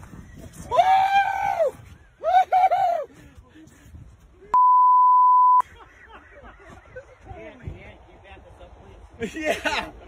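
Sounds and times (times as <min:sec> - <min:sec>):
censor bleep: 0:04.6 - 0:05.6.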